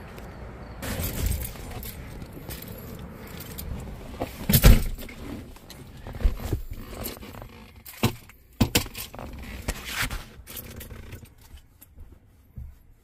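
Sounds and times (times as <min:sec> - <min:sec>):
keys jangling: 0:00.8 - 0:03.9
car door handling: 0:03.4 - 0:07.0.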